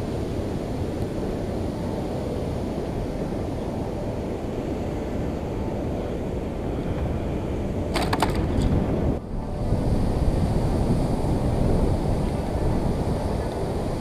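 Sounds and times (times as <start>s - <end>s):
wind buffeting microphone: 0.0s - 14.0s
sharp clicks or rattles: 7.9s - 8.7s.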